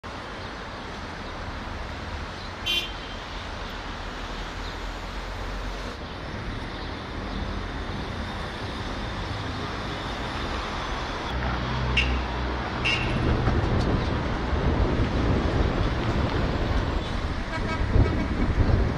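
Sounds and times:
vehicles driving past: 0.1 - 18.9
car horn toot: 2.6 - 3.2, 12.0 - 13.2, 17.5 - 18.4.

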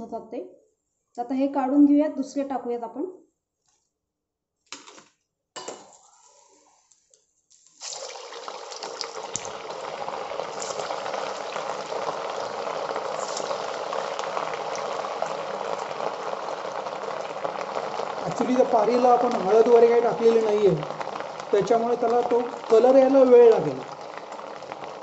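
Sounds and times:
hot oil sizzling: 7.6 - 25.0.

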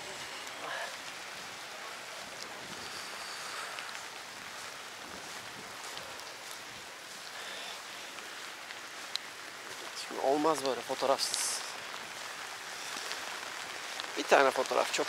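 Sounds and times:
waves hissing: 0.0 - 4.8
light rain: 0.0 - 15.0
faint ticks: 5.9 - 9.9.

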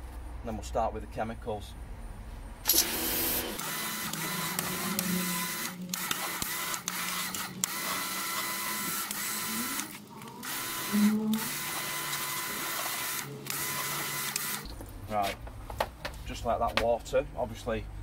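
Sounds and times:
pressure washer motor whirring: 2.6 - 14.7.

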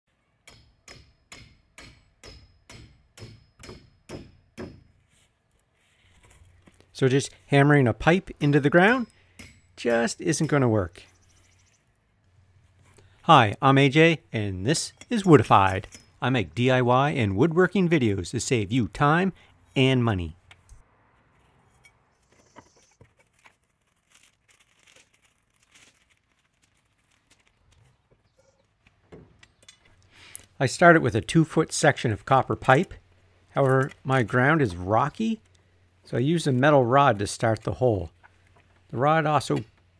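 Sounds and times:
hammer striking metal pipe: 0.4 - 4.9, 8.9 - 10.7.

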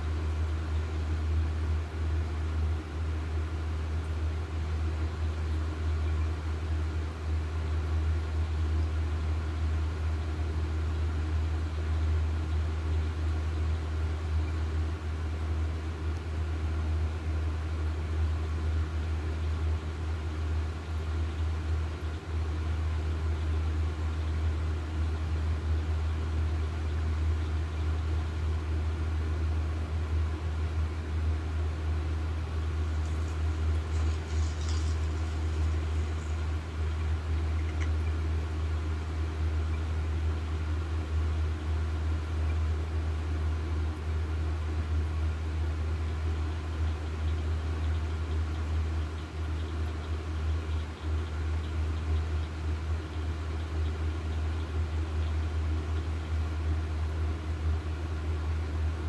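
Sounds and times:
deep hum: 22.7 - 43.7.

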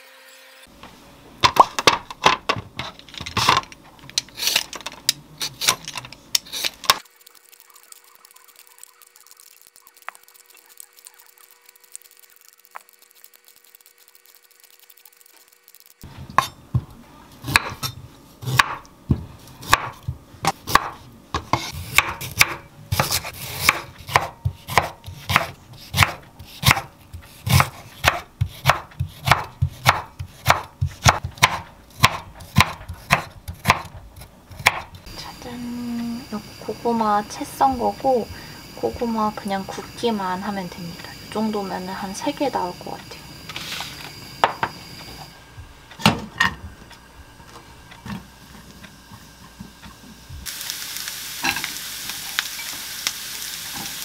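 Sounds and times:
knife cutting on wooden board: 20.5 - 34.0.

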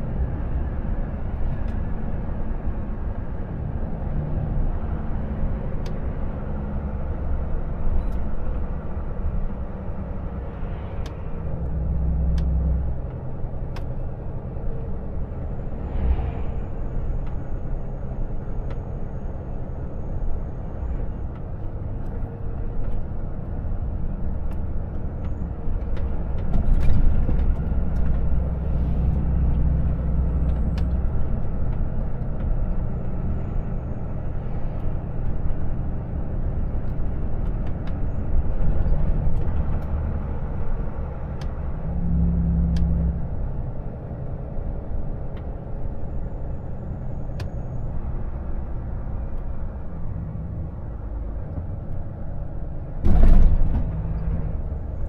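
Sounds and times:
diesel truck engine rumble: 0.0 - 55.0.

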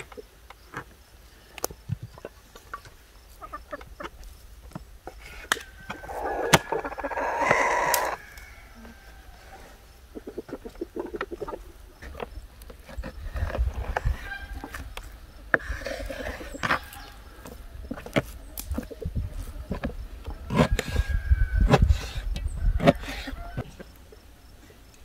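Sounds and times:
rooster crowing: 5.5 - 9.8.

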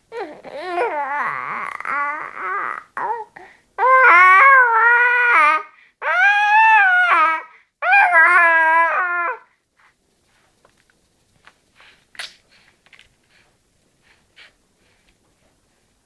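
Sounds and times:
infant crying: 0.1 - 9.5.

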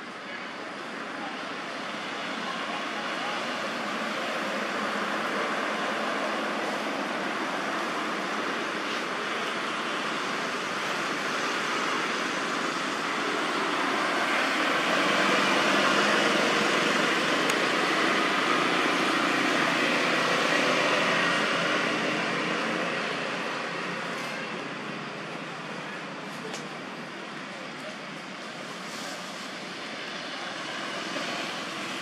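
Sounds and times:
rushing background noise: 0.0 - 32.0.

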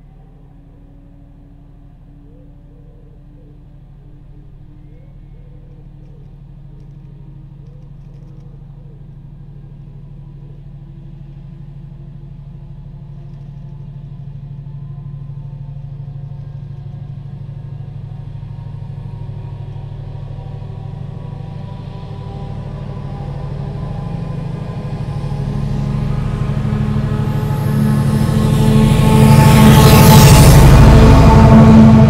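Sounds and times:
diesel locomotive engine drone: 0.0 - 32.0.

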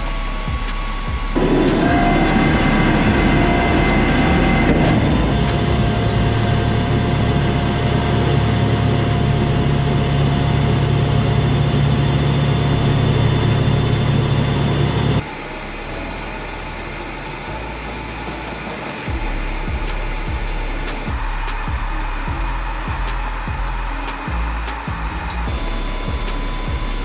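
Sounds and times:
heavy vehicle engine hum: 0.0 - 27.0
quieter steady hum: 0.0 - 27.0.

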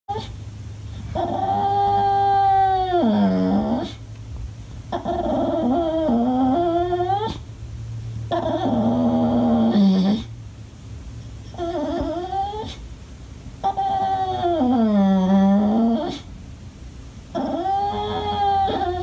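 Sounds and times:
dog crying: 0.1 - 0.4, 1.1 - 4.0, 4.9 - 7.4, 8.3 - 10.3, 11.5 - 12.8, 13.6 - 16.3, 17.3 - 19.0.

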